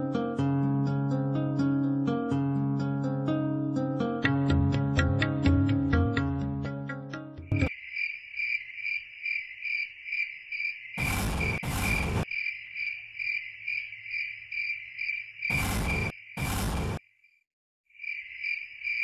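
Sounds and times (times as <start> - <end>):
cricket chirping: 7.6 - 19.0
loud bursts of hissing noise: 11.0 - 12.2, 15.5 - 17.0.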